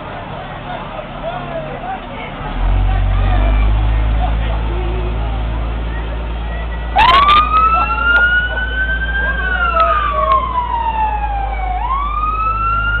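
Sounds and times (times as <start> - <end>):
fire truck siren wailing: 6.9 - 13.0.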